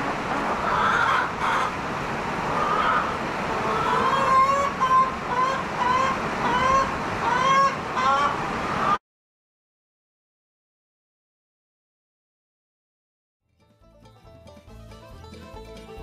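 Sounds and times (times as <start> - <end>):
chickens calling: 0.0 - 1.8, 2.4 - 9.0.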